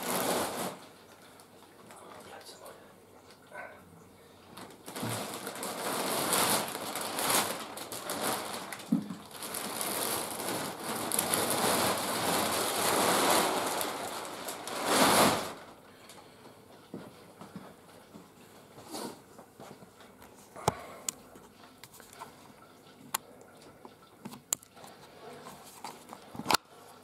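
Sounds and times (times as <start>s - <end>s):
plastic bag crinkling: 0.0s - 2.4s, 4.4s - 15.8s.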